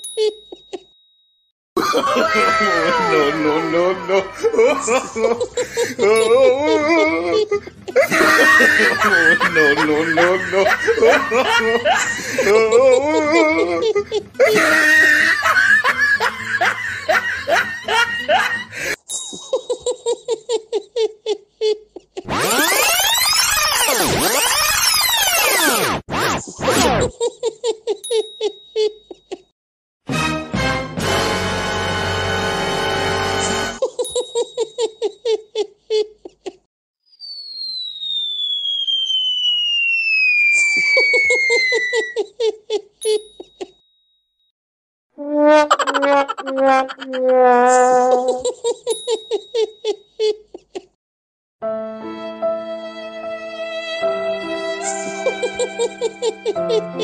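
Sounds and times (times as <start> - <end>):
person laughing: 1.8 - 22.6, 33.8 - 36.7, 40.8 - 43.8, 48.0 - 51.0, 54.8 - 57.0
descending cartoon whistle: 22.3 - 26.0, 37.0 - 42.2
electronic music with sweeping tones: 22.3 - 26.9
short squeaky notes: 22.3 - 27.1, 45.2 - 48.4.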